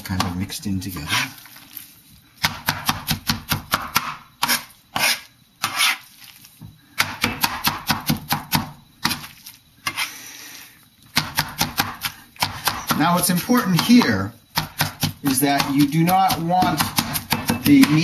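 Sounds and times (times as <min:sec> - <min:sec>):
scraping on cutting board: 0:00.1 - 0:03.1, 0:04.4 - 0:06.4, 0:09.0 - 0:10.3
cleaver chopping on cutting board: 0:02.4 - 0:05.9, 0:07.0 - 0:09.2, 0:11.2 - 0:18.0.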